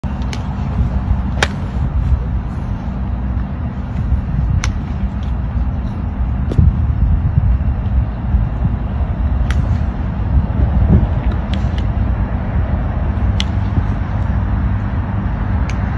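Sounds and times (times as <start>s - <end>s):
steady low rumble: 0.0s - 15.9s
golf clubs striking balls: 0.1s - 6.7s, 9.4s - 10.2s, 10.9s - 12.1s, 13.2s - 14.3s.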